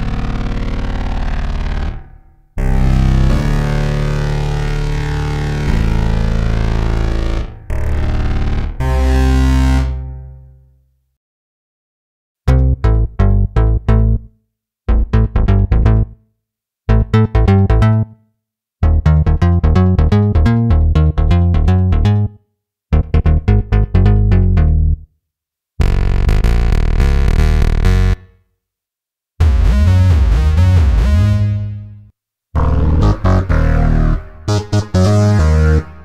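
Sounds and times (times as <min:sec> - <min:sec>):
staccato synthesizer bass notes: 0:00.0 - 0:10.1, 0:12.5 - 0:14.3, 0:14.9 - 0:16.2, 0:16.9 - 0:18.2, 0:18.8 - 0:25.0, 0:25.8 - 0:28.3, 0:29.4 - 0:32.0, 0:32.6 - 0:36.0
held synthesizer notes: 0:29.4 - 0:36.0.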